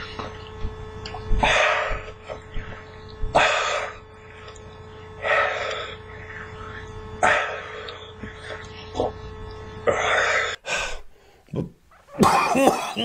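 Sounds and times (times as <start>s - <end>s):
faint steady hum: 0.0s - 13.0s
man breathing forcefully: 1.4s - 4.3s, 5.1s - 8.7s.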